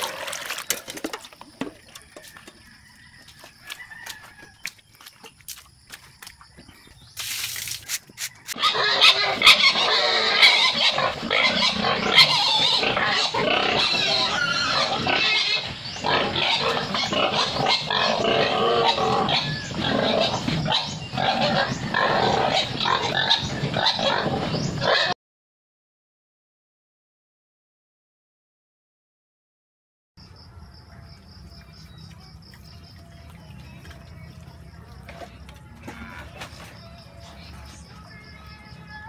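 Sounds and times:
feed poured into trough: 0.0s - 1.4s
pigs calling noisily: 8.5s - 25.2s.

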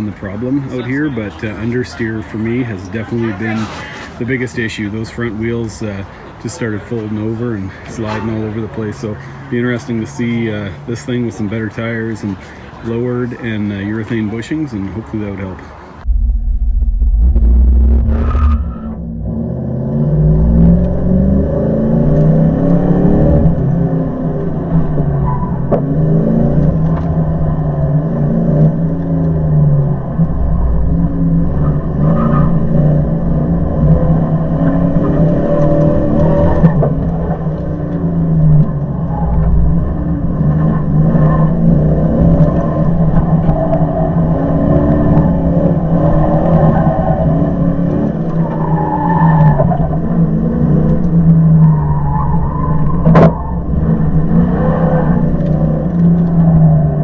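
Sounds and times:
truck engine revving: 16.0s - 57.0s.

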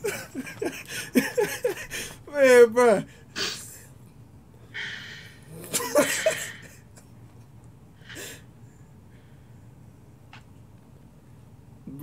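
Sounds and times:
man's stifled laughter: 0.0s - 2.2s, 5.5s - 7.2s.

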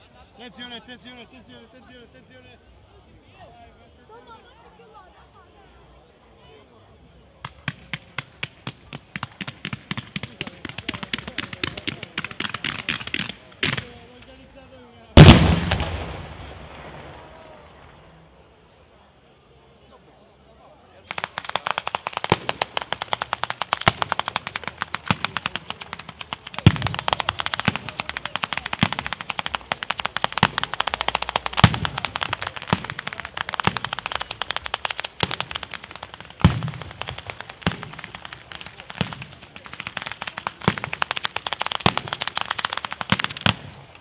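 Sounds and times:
rapid firecracker bangs: 7.4s - 14.5s, 15.2s - 18.2s, 21.1s - 44.0s
deep firework booms: 15.2s - 18.0s, 21.9s - 43.8s.

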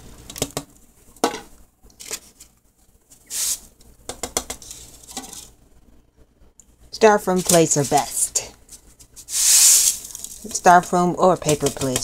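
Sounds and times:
dry spices swishing: 9.1s - 10.8s.

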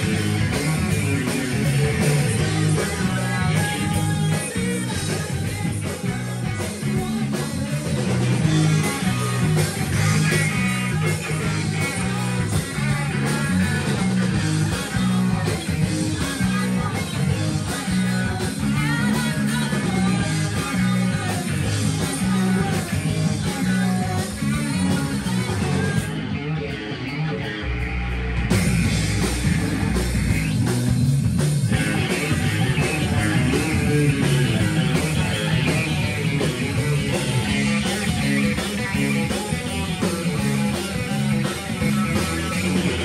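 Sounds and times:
electric guitar: 0.0s - 43.0s
rock band playing live: 0.0s - 43.0s.

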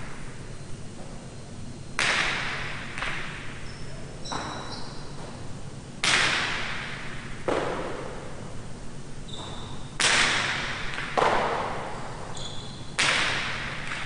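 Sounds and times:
ball cracking against walls: 6.0s - 8.3s, 9.3s - 12.1s, 13.0s - 14.0s
short high squeak: 12.3s - 12.8s.

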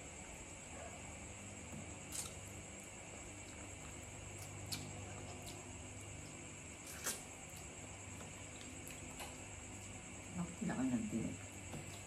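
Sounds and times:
faint background hum: 0.0s - 12.0s
wet chewing clicks and smacks: 3.4s - 5.7s.

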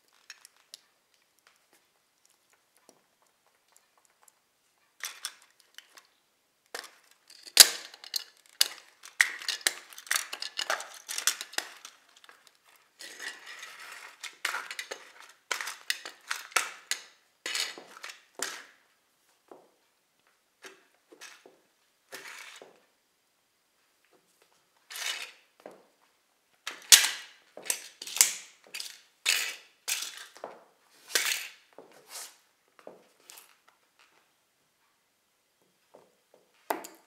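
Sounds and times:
plastic toy cracking underfoot: 6.7s - 12.6s.

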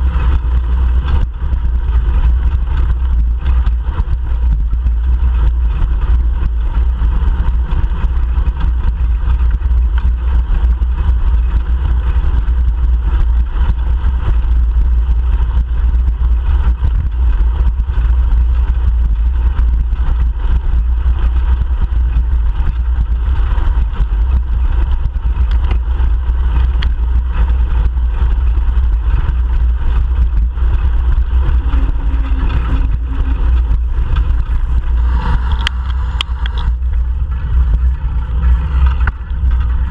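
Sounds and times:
wind and road noise: 0.0s - 39.9s
car traffic passing: 31.0s - 39.9s.

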